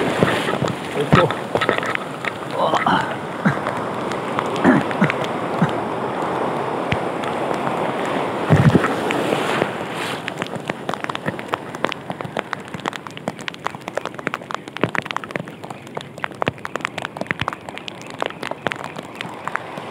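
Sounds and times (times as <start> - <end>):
surf rushing and foaming: 0.0 - 19.9
sharp ticks: 10.2 - 19.9.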